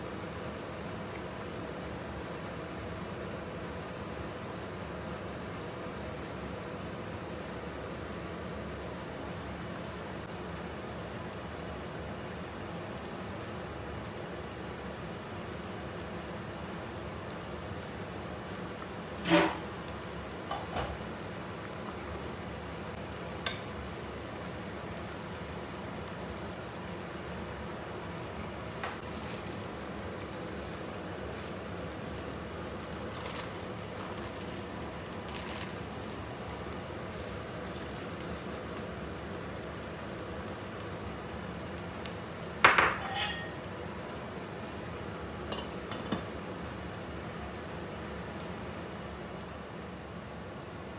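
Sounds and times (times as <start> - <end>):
soup bubbling at rolling boil: 9.8 - 50.9
lid and spoon clinking on pot: 42.7 - 43.6.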